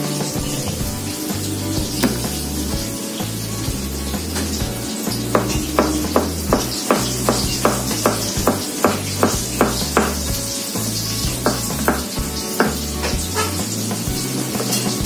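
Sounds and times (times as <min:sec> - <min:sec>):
background music with beat: 0:00.0 - 0:15.0
knife chopping on plastic board: 0:05.3 - 0:10.3, 0:11.4 - 0:12.8.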